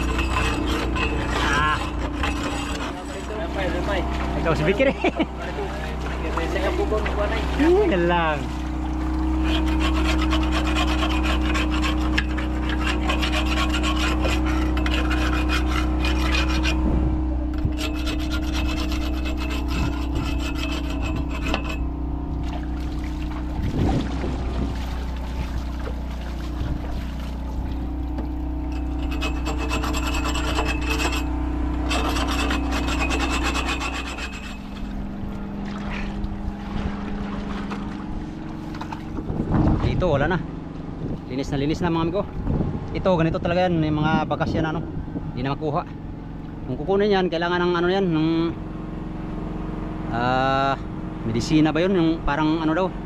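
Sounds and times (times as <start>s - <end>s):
wooden hull being scraped: 0.0s - 40.1s
low machine hum: 0.0s - 53.0s.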